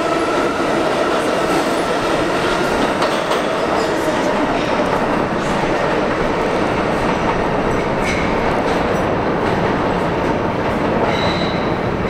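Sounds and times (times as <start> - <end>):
subway train wheels on rail: 0.0 - 12.0
faint wheel squeal: 11.1 - 11.7.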